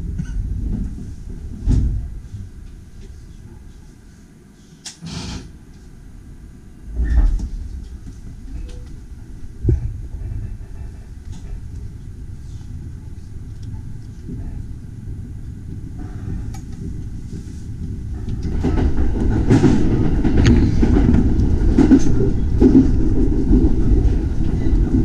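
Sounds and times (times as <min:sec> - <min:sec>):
train rumble: 0:00.0 - 0:25.0
sharp clacks of train wheels: 0:15.6 - 0:25.0.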